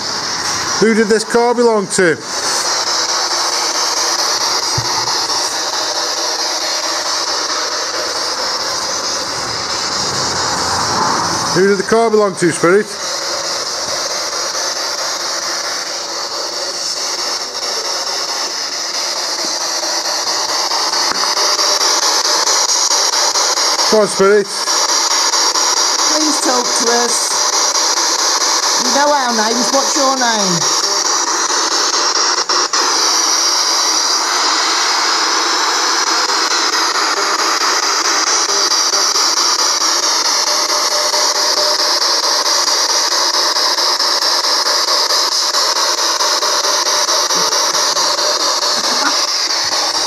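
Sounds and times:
radio static scanning: 0:00.0 - 0:14.1, 0:26.1 - 0:27.7, 0:28.6 - 0:31.0, 0:46.9 - 0:50.0
radio static hiss: 0:00.0 - 0:50.0.

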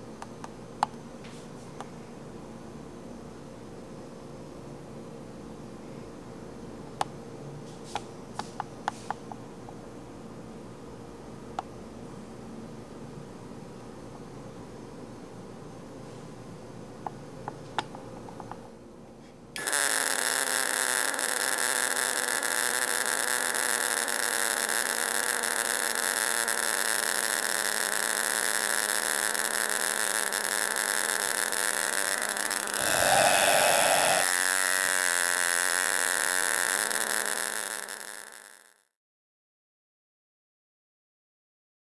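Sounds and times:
electric arc buzzing hiss: 0:19.6 - 0:38.8.

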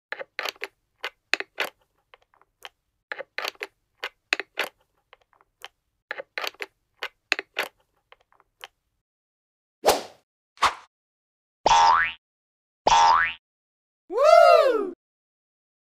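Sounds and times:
plastic toy parts clicking: 0:00.1 - 0:08.8.

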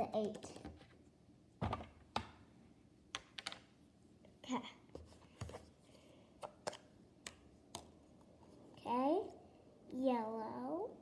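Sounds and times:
plastic clicks and taps: 0:06.4 - 0:07.9.

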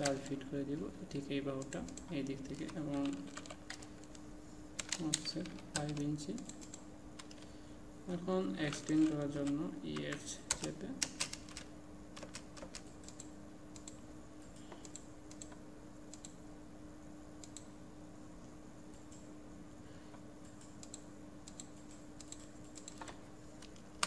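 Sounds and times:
faint steady hum: 0:00.0 - 0:24.0
keyboard and mouse clicks: 0:10.5 - 0:16.4, 0:20.4 - 0:24.0.

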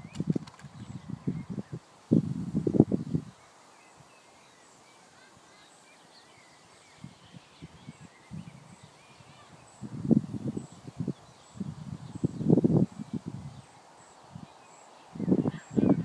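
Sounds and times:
wind noise on microphone: 0:00.0 - 0:03.4, 0:06.8 - 0:16.0
birds chirping: 0:02.9 - 0:16.0.

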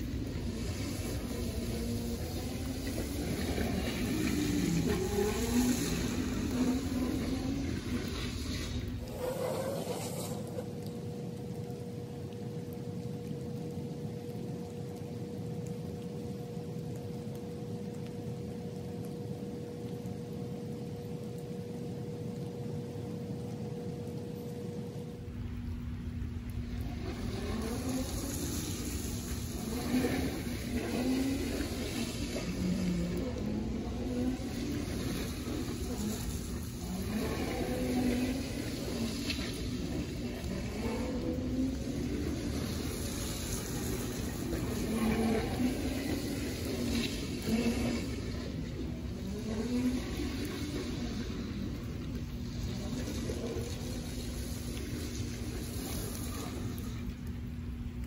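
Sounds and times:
electric go-kart whine: 0:00.0 - 0:11.1, 0:26.6 - 0:57.1
steady hiss: 0:00.0 - 0:58.0.

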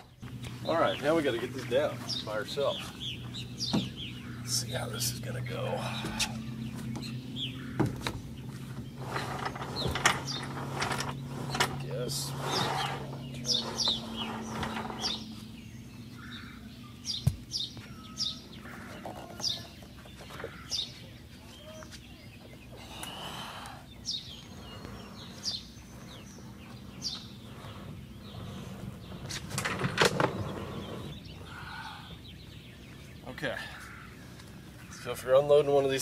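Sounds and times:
bird chirping: 0:00.0 - 0:36.0
kayak hull knocking and scraping: 0:06.1 - 0:15.4, 0:18.7 - 0:20.7, 0:24.6 - 0:31.2.

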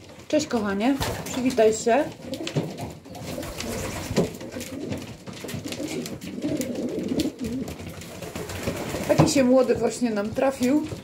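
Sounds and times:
pigeons cooing: 0:02.2 - 0:09.0.

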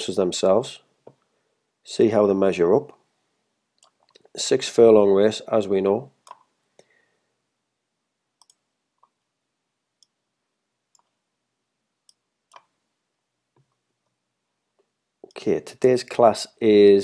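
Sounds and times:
computer mouse clicks: 0:03.8 - 0:04.3, 0:08.4 - 0:09.2, 0:12.1 - 0:12.8.

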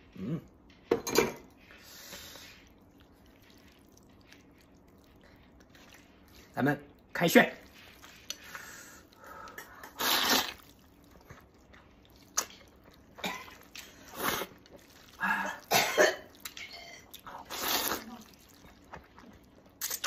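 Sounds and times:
quiet chewing: 0:00.0 - 0:20.0
person slurping noodles: 0:07.9 - 0:10.8, 0:13.4 - 0:15.8, 0:17.2 - 0:18.6.

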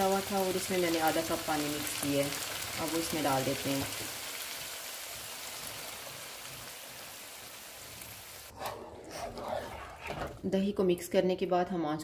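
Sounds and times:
food sizzling in pan: 0:00.0 - 0:08.5.

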